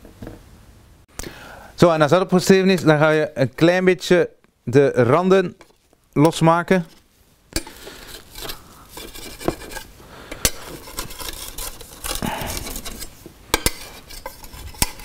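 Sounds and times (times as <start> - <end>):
metal spatula scraping baking dish: 7.6 - 15.0.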